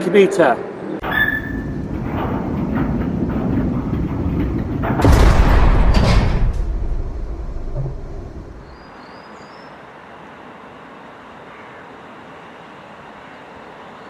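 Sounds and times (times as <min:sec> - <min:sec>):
metal door slamming: 0:01.0 - 0:08.8
train carriage rumble: 0:01.0 - 0:08.9
steady hum: 0:01.4 - 0:08.9.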